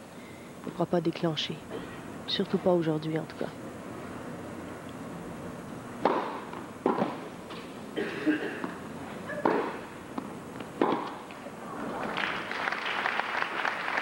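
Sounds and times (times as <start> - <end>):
tennis ball struck by rackets: 6.0 - 7.7, 9.4 - 11.3.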